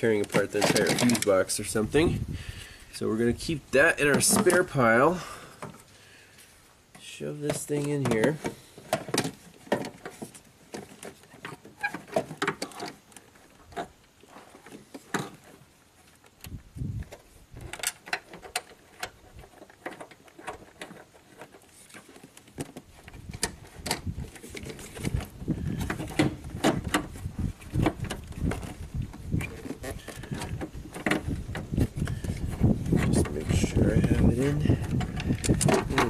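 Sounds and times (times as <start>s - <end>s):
plastic connectors clicking and rattling: 0.2s - 1.3s, 27.8s - 36.0s.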